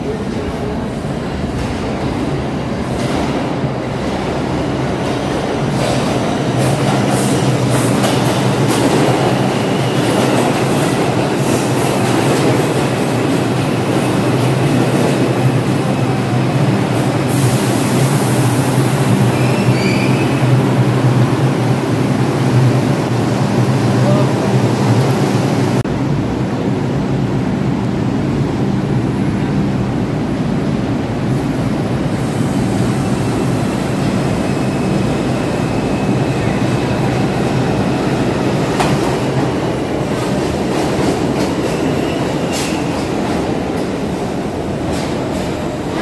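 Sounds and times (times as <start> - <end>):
subway train rumbling: 0.0 - 46.0
brief wheel squeals: 19.4 - 20.4.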